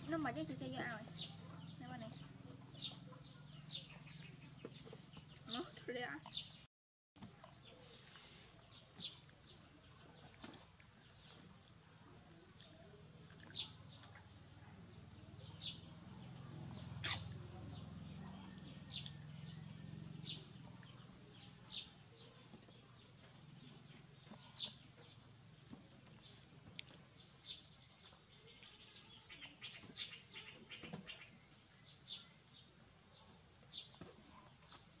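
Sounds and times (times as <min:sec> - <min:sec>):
small animal chirps: 0:17.0 - 0:17.4.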